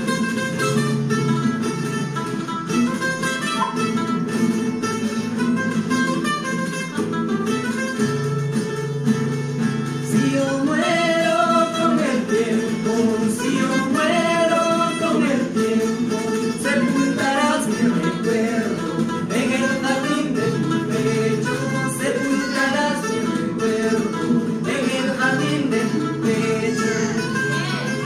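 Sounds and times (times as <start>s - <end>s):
acoustic guitar strumming: 0.0s - 28.0s
mandolin: 0.0s - 28.0s
voices singing: 10.1s - 28.0s.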